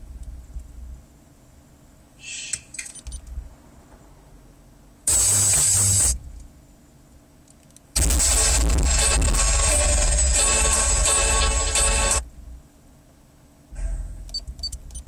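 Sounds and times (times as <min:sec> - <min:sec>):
bass-heavy music from car stereo: 0:08.0 - 0:12.2.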